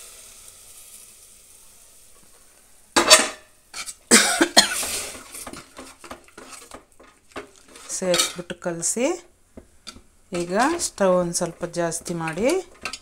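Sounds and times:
curry sizzling in hot oil: 0.0s - 13.0s
metal ladle scraping a pot: 3.0s - 4.0s, 4.8s - 8.6s, 9.9s - 13.0s.

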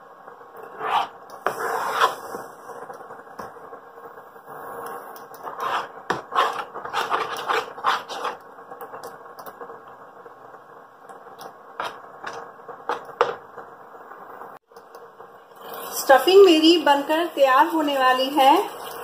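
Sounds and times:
faint cooktop hum: 0.0s - 19.0s
spatula scraping a pan: 0.6s - 2.5s, 5.4s - 8.4s, 11.8s - 13.0s.

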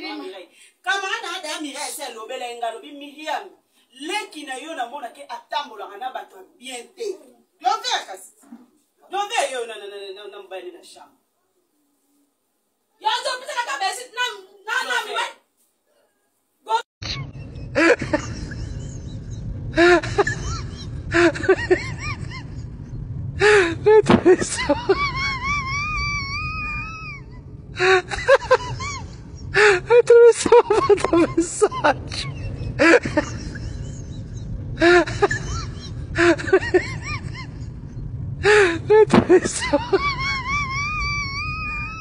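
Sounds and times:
low background hum: 17.0s - 42.0s.

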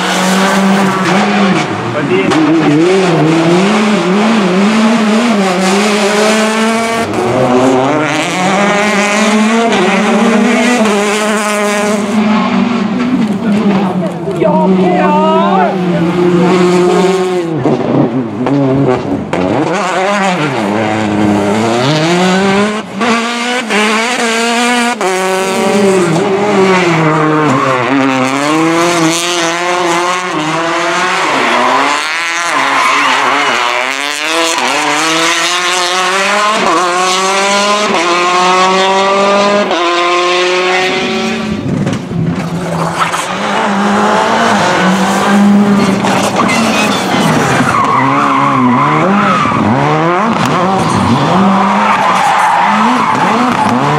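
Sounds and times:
rally car engines revving: 0.0s - 53.9s
tyre squeal: 45.8s - 49.8s.

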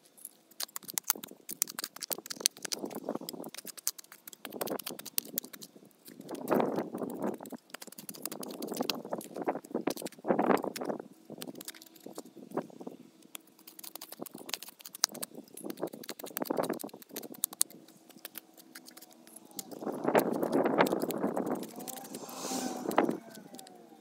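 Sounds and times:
hand trowel scraping soil: 15.6s - 24.0s.

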